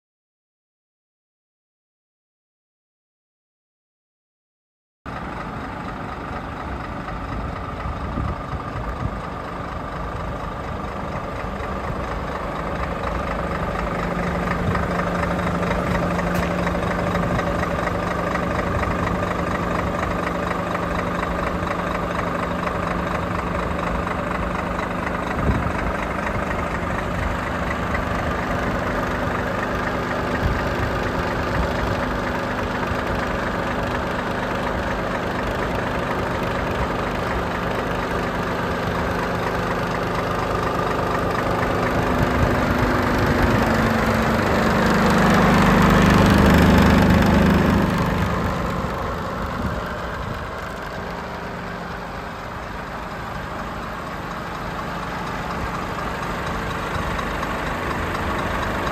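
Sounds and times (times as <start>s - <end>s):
diesel engine idling: 5.1s - 58.9s.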